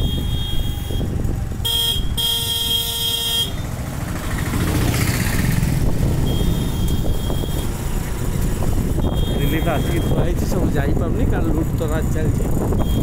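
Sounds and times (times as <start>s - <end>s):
vehicle horn: 0.0s - 3.6s, 6.2s - 7.7s, 9.0s - 10.3s, 12.8s - 13.0s
road traffic rumble: 0.0s - 13.0s.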